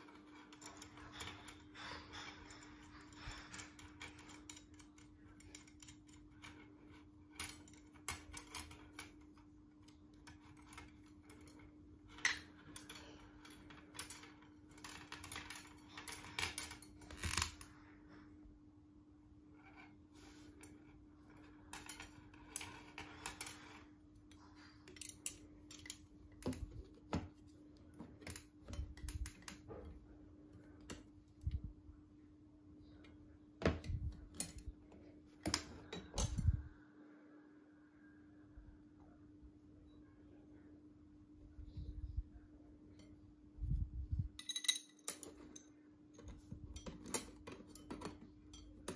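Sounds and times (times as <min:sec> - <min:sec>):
faint steady hum: 0:00.0 - 0:48.9
brass rods and screws clinking: 0:44.4 - 0:48.9.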